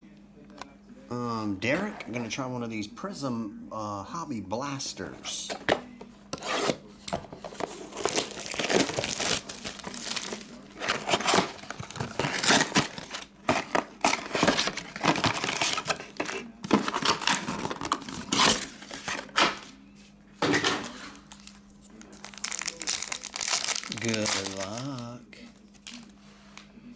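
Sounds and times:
card packs rustling: 0:05.0 - 0:19.8, 0:20.4 - 0:26.7
cellophane crinkling and tearing: 0:07.4 - 0:19.4, 0:21.2 - 0:26.2.

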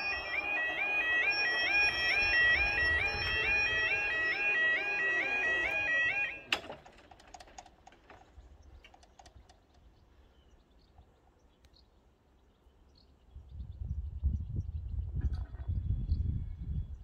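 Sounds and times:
level crossing alarm warbling: 0:00.0 - 0:06.6.

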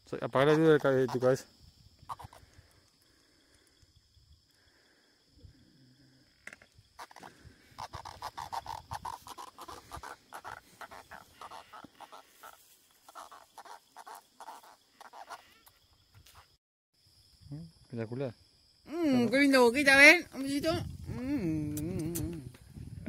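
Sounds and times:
catfish croaking: 0:02.0 - 0:02.7, 0:07.0 - 0:15.8.

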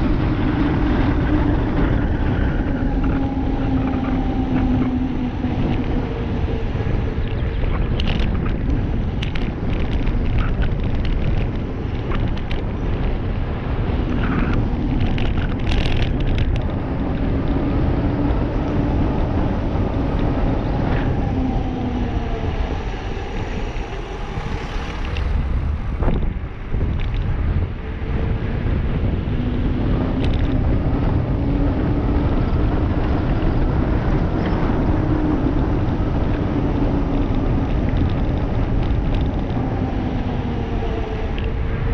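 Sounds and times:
bike tyres humming on asphalt: 0:00.0 - 0:41.9
wind on microphone: 0:00.0 - 0:41.9
car passing: 0:11.3 - 0:41.9.

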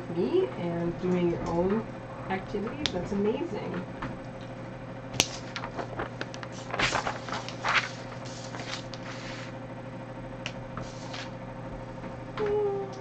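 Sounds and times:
paper sliding on a tabletop: 0:05.3 - 0:09.6, 0:10.8 - 0:11.3.

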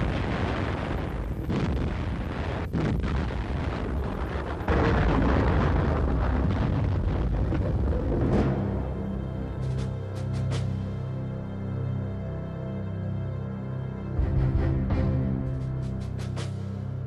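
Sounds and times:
artillery blasts: 0:00.0 - 0:09.7
deep rumble: 0:00.0 - 0:11.7.

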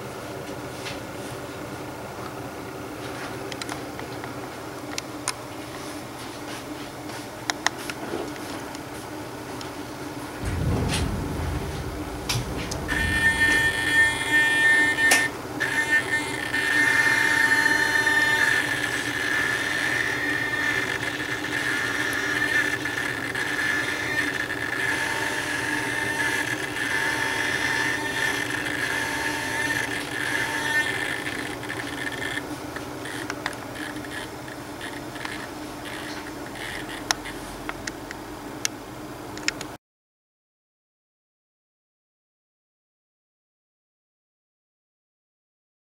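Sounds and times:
low electronic hum: 0:10.4 - 0:15.3
small motors whining: 0:12.9 - 0:37.4.

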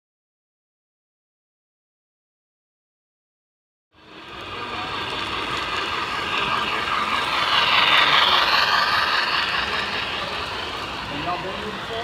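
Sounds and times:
model train rolling on track: 0:04.0 - 0:12.0.

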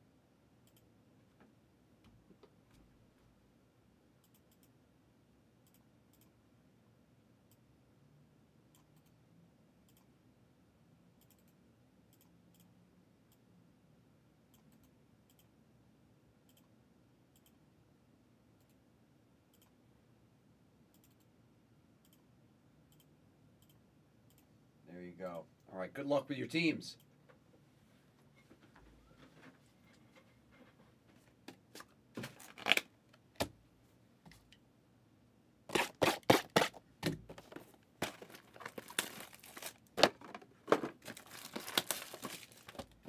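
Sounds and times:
computer mouse clicking: 0:00.6 - 0:00.9, 0:04.2 - 0:04.8, 0:05.6 - 0:06.4, 0:08.7 - 0:09.2, 0:09.8 - 0:10.1, 0:11.2 - 0:12.7, 0:16.5 - 0:16.7, 0:17.3 - 0:17.6, 0:20.9 - 0:21.3, 0:22.0 - 0:22.3.

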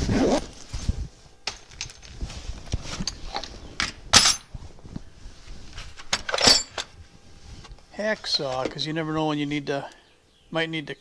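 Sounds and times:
metal tools clattering: 0:02.9 - 0:04.6, 0:06.0 - 0:07.0.

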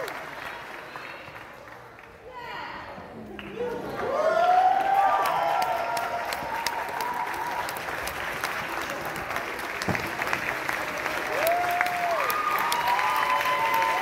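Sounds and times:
audience clapping: 0:00.0 - 0:02.2, 0:03.2 - 0:14.0
person cheering: 0:11.3 - 0:14.0.

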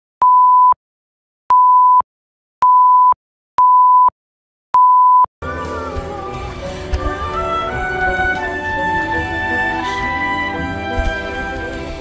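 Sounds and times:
short electronic beeps: 0:01.5 - 0:02.0, 0:02.6 - 0:04.1, 0:04.8 - 0:05.3.

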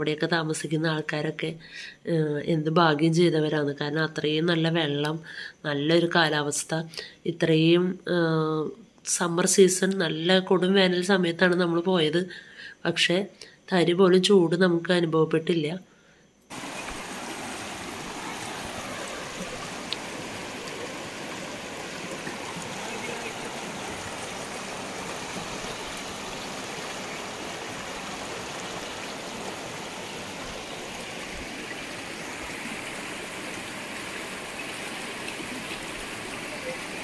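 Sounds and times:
stream rushing over stones: 0:16.5 - 0:37.0.

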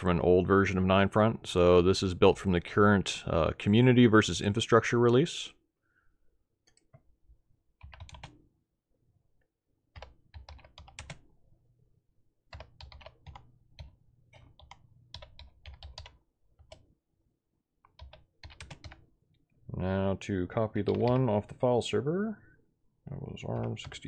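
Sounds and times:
computer keyboard typing: 0:07.8 - 0:08.4, 0:09.9 - 0:11.3, 0:12.5 - 0:16.9, 0:17.8 - 0:19.1, 0:20.8 - 0:21.6, 0:23.4 - 0:24.0.

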